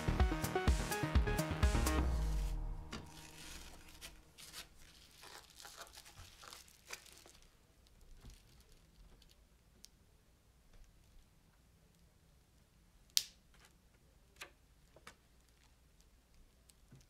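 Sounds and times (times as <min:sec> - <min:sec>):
rustling and crinkling: 0:03.0 - 0:10.0.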